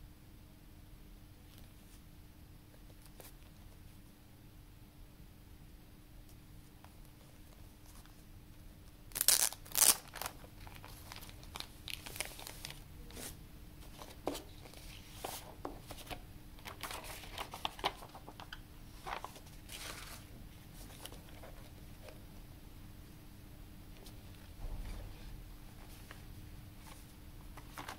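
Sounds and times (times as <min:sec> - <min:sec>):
shrink wrap tearing: 0:09.1 - 0:12.8
plastic wrap crinkling: 0:09.1 - 0:13.4.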